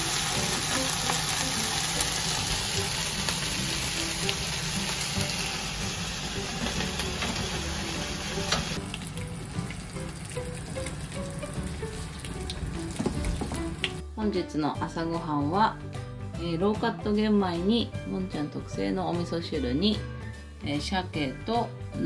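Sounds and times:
bacon sizzling in a frying pan: 0:00.0 - 0:14.0.

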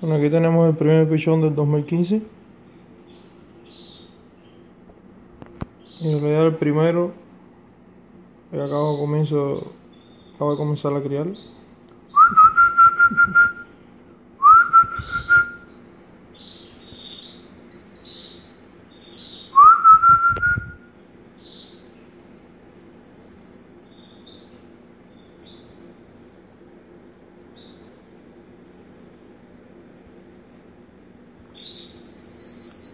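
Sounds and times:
small birds chirping: 0:00.1 - 0:07.2, 0:08.0 - 0:13.7, 0:14.5 - 0:29.5, 0:30.3 - 0:32.9
person whistling: 0:12.2 - 0:13.7, 0:14.4 - 0:15.6, 0:19.6 - 0:20.8.

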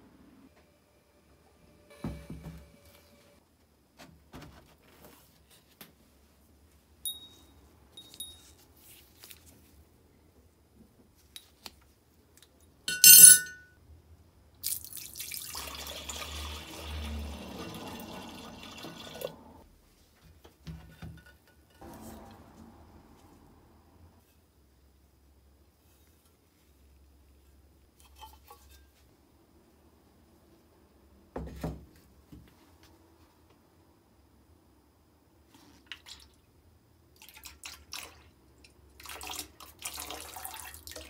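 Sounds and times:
faint light clinks: 0:07.0 - 0:08.6
metal part clinking into glass: 0:12.9 - 0:13.7
water pouring into glass: 0:14.6 - 0:19.6.

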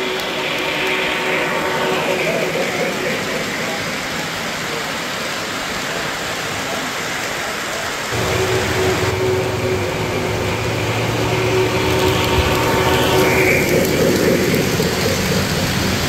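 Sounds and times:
steady hum: 0:08.2 - 0:16.0.

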